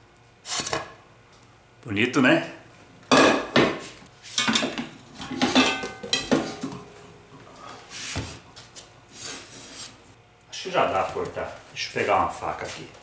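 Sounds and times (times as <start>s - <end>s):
pot and utensil clattering: 4.4s - 7.0s.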